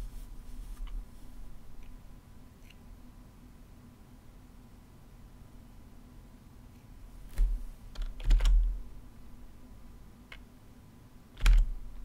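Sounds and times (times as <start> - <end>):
computer keyboard keystrokes: 7.4 - 8.8, 11.4 - 11.8.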